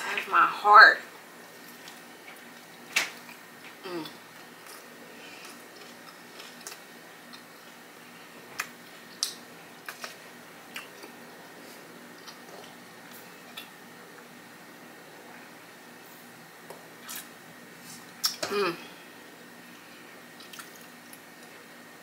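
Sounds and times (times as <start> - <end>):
person humming with enjoyment: 3.8 - 4.2, 18.4 - 18.9
wet chewing mouth clicks: 20.4 - 20.9.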